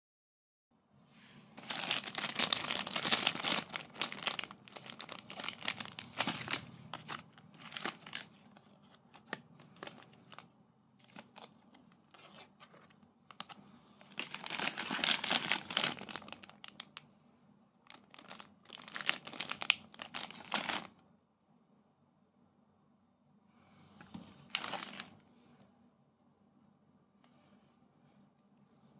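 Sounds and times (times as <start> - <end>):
snack packets crinkling: 1.6 - 17.0, 17.9 - 21.0, 24.4 - 25.2.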